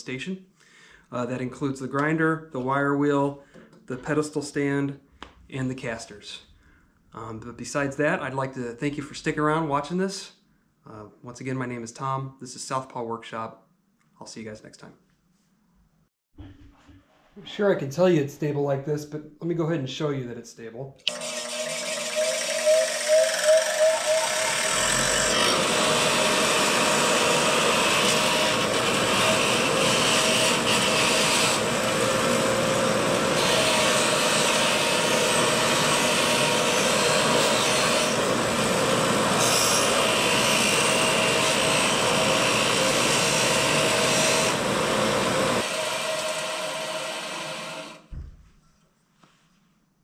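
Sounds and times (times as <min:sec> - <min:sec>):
bench grinder motor hum: 0:21.1 - 0:48.0.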